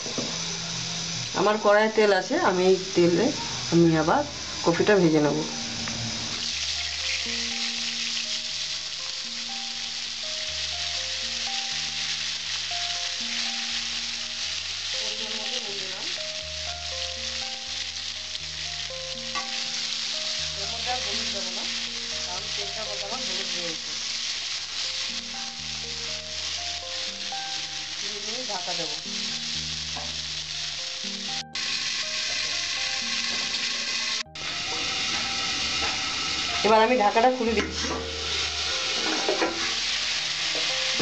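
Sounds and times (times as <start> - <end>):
vegetables sizzling in oil: 0.0 - 41.0
spatula scraping pan: 34.4 - 41.0.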